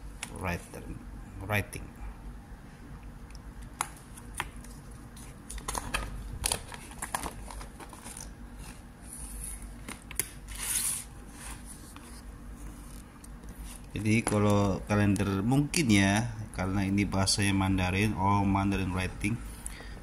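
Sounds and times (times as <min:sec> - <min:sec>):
paper pages rustling: 0:04.0 - 0:14.4.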